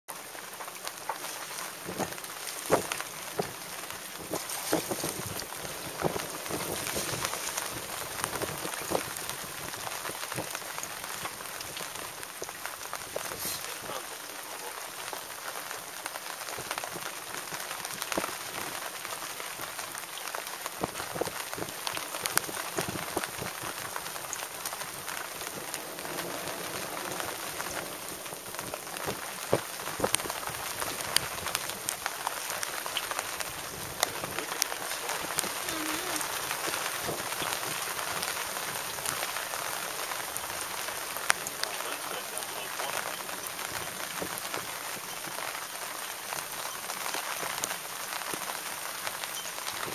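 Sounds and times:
rain falling: 0.1 - 49.9.

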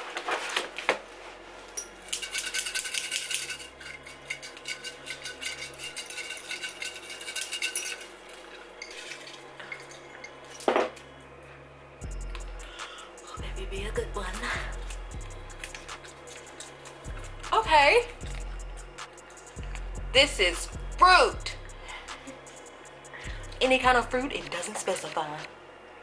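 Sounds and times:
container shaken with clinking rattle: 1.8 - 11.0, 14.7 - 17.3.

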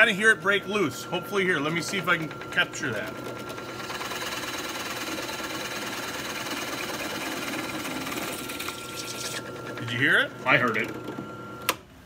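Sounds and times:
drill press boring through wood: 0.0 - 11.8.

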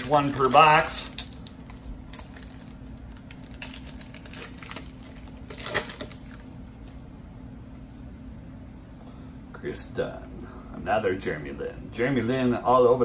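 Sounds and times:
cards clattering: 0.0 - 2.7, 3.3 - 6.5
cards clicking and rustling: 0.0 - 6.5.

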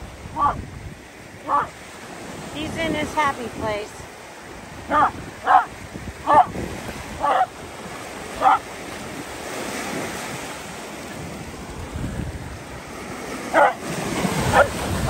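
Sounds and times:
surf washing onto sand: 0.0 - 15.0
wind on microphone: 0.0 - 15.0
small dog barking: 0.4 - 0.6, 1.4 - 1.8, 4.9 - 6.6, 7.2 - 7.5, 8.4 - 8.7, 13.5 - 14.8.

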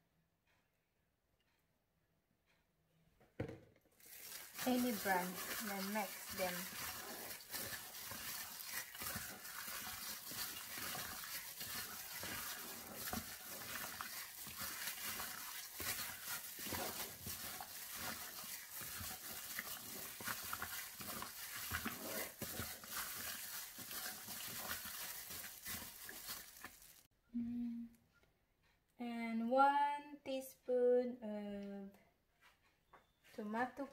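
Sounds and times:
plastic glove rustling: 4.0 - 27.1
squishing of raw meat: 4.0 - 27.1.

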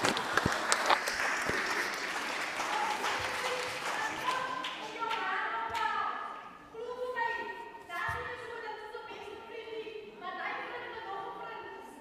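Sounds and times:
audience applause: 0.0 - 5.0.

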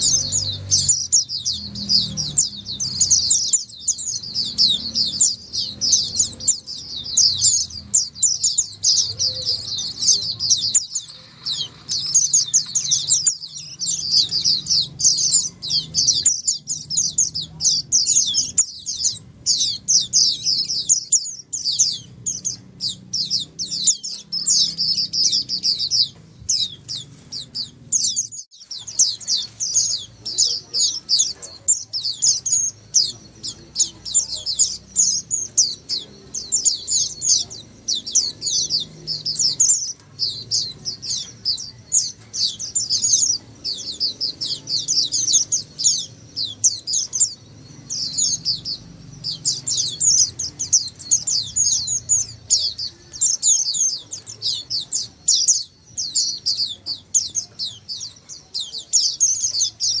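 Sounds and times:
flock of birds twittering: 0.0 - 60.0.

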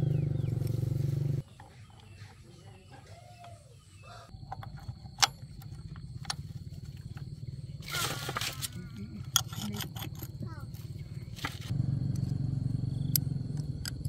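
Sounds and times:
metallic clicks of engine parts: 4.3 - 7.4, 8.4 - 14.0.

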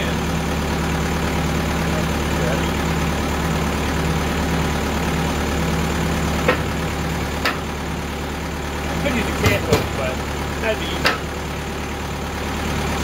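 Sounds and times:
sawmill engine idling: 0.0 - 13.0
sharp knocks: 6.4 - 6.8, 7.4 - 7.7, 9.4 - 10.0, 11.0 - 11.4.

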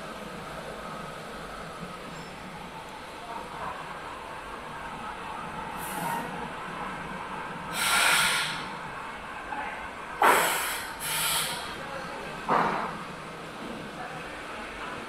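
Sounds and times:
short hissing bursts: 10.2 - 11.7.

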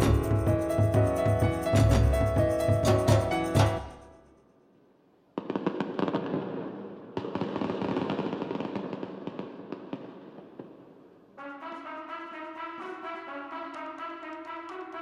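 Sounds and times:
music: 0.0 - 4.4, 11.4 - 15.0.

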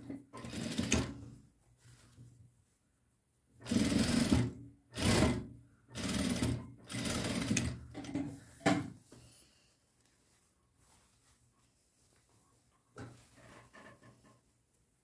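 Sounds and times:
sewing machine stitching: 0.0 - 1.3, 3.6 - 8.2.

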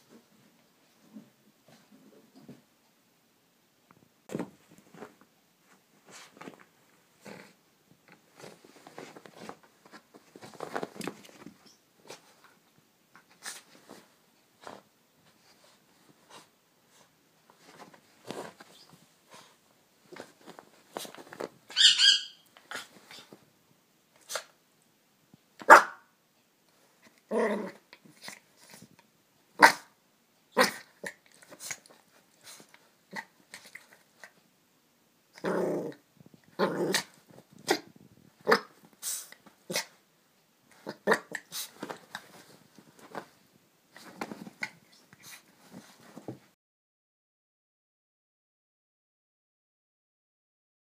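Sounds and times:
scuffling against fabric: 4.3 - 7.0, 8.3 - 12.5, 13.3 - 21.7, 41.4 - 46.5
dog play barking and growling: 4.3 - 23.4, 26.7 - 34.5, 35.2 - 40.1, 40.7 - 46.5
dog yipping: 21.7 - 22.4.

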